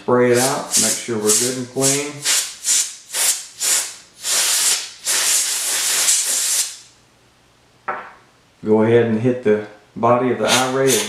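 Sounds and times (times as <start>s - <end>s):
compressed air duster spraying: 0.4s - 6.9s, 10.4s - 11.0s.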